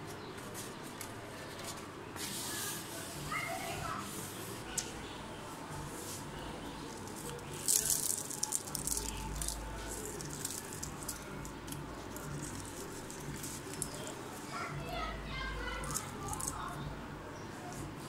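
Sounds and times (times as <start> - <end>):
fried dough crackling as torn: 6.8 - 14.3.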